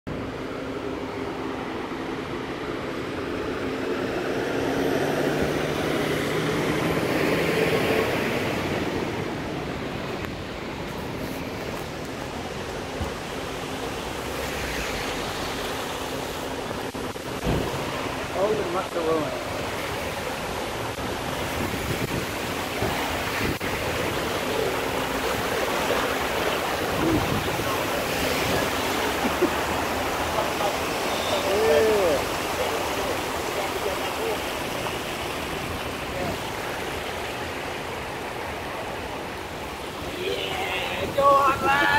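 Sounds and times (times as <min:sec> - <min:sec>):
water rushing across street: 0:00.1 - 0:41.9
constant hiss: 0:09.4 - 0:41.9.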